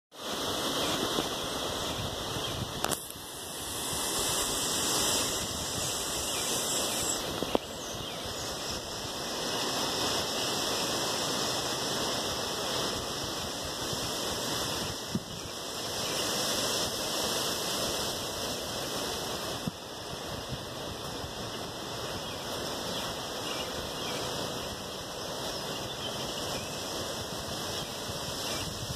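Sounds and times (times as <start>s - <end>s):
steady outdoor hiss: 0.1s - 28.9s
faint click: 2.8s - 3.2s.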